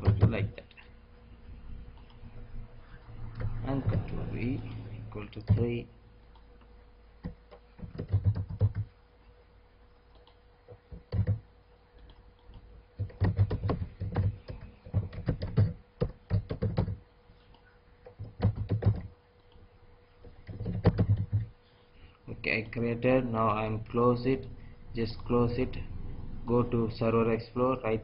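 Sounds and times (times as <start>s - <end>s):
faint steady hum: 0.0s - 28.0s
computer keyboard typing: 5.3s - 5.7s, 7.2s - 8.9s, 10.1s - 17.0s, 18.1s - 19.2s, 20.3s - 21.5s.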